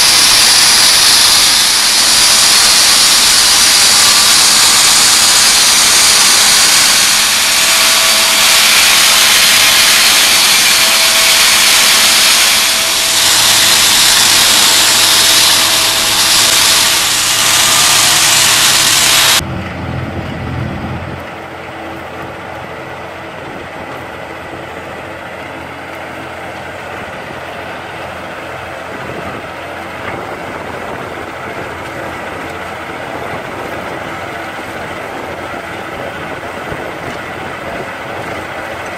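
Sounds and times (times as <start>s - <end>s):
rock saw grinding hiss: 0.0s - 19.4s
faint steady whine: 0.0s - 38.9s
tractor engine running: 0.0s - 38.9s.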